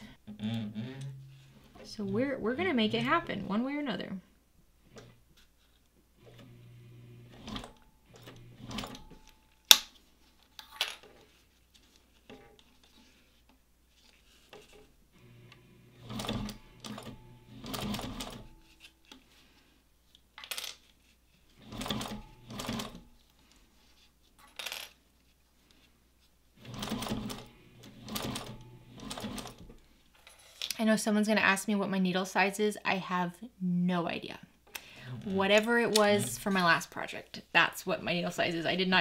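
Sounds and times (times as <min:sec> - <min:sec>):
sewing machine stitching: 0:06.2 - 0:09.2, 0:15.2 - 0:18.6, 0:21.6 - 0:23.1, 0:26.6 - 0:29.7.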